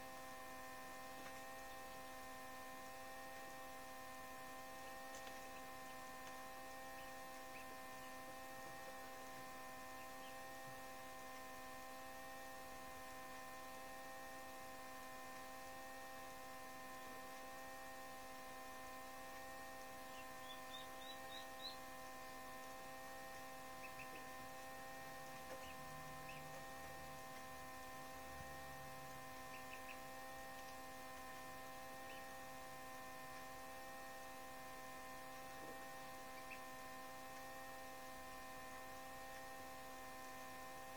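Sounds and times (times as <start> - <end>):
faint electrical hum: 0.0 - 40.9
duckling peeping: 20.1 - 21.9, 23.8 - 24.4, 25.3 - 27.0, 29.4 - 30.3, 32.0 - 32.4, 36.3 - 36.7.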